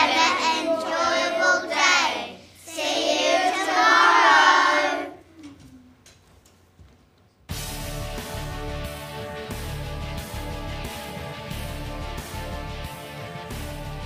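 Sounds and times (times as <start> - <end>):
children singing in unison: 0.0 - 5.2.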